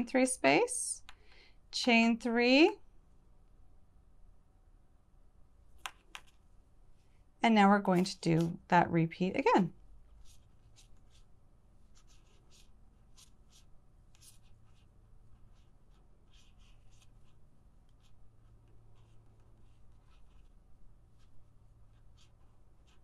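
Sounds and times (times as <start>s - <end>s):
crochet hook scratching yarn: 7.8s - 8.7s, 9.4s - 23.0s.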